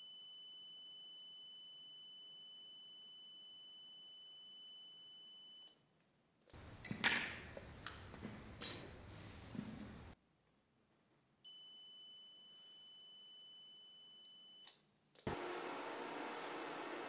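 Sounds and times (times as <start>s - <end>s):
multimeter continuity beep: 11.5s - 14.7s.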